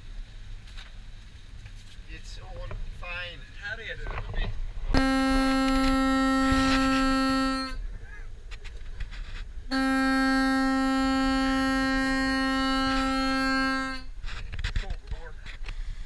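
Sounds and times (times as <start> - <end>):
bellows foghorn blasts: 4.9 - 7.9, 9.7 - 14.4.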